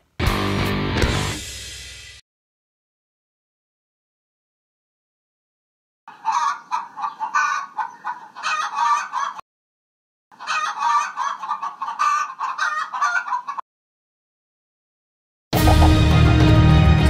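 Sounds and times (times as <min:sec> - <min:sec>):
chickens clucking: 0:06.1 - 0:09.4, 0:10.3 - 0:13.6, 0:15.6 - 0:16.3.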